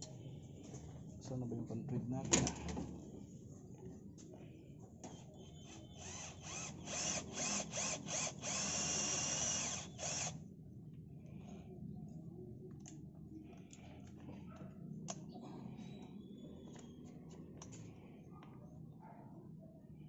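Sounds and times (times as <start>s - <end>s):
cordless drill bursts: 5.7s - 10.4s.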